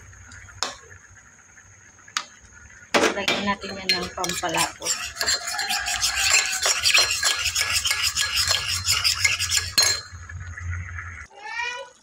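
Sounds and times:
spatula scraping a metal wok: 0:03.6 - 0:10.2.

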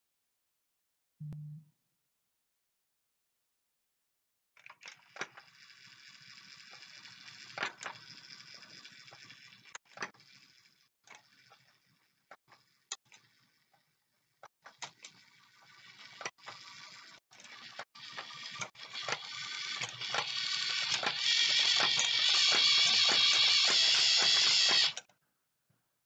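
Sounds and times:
motor and plastic gears whirring: 0:04.6 - 0:25.1.

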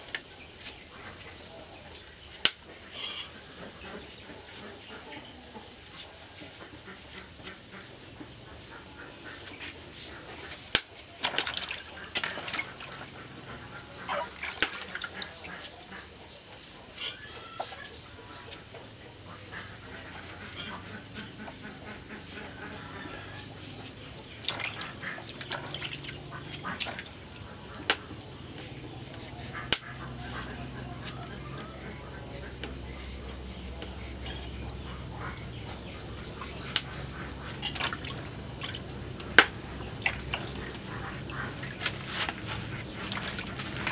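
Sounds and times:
water splashing and dripping: 0:10.6 - 0:15.8, 0:24.2 - 0:28.1, 0:36.3 - 0:43.9.

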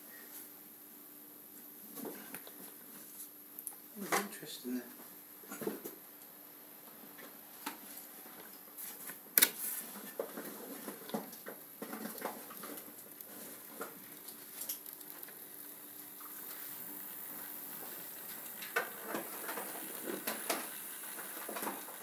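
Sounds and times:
small clicks and ticks: 0:11.1 - 0:22.0
model train motor hum: 0:12.9 - 0:22.0.

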